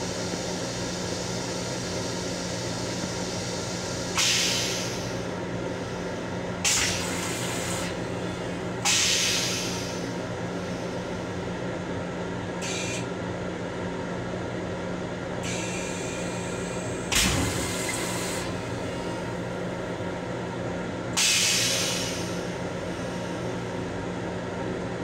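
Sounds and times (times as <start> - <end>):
air hissing bursts: 2.8 - 5.2, 6.6 - 8.0, 8.8 - 10.1, 21.2 - 22.4.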